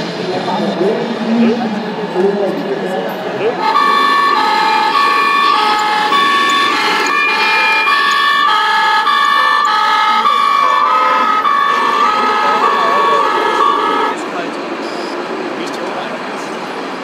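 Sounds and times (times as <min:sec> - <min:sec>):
two-tone fire engine siren: 0:03.5 - 0:15.1.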